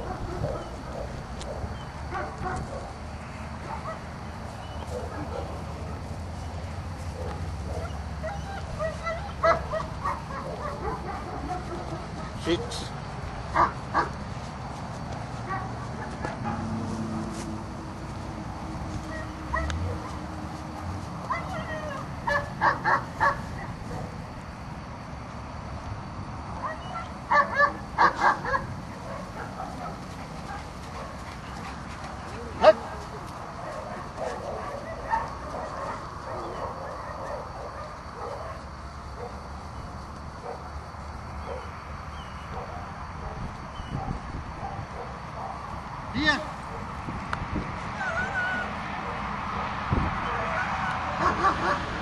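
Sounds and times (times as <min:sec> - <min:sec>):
dog barking and yipping: 0:00.0 - 0:03.0, 0:03.6 - 0:12.8, 0:13.5 - 0:14.2, 0:15.4 - 0:16.9, 0:19.0 - 0:20.3, 0:21.2 - 0:24.2, 0:26.6 - 0:39.4, 0:41.4 - 0:45.6, 0:48.0 - 0:52.0.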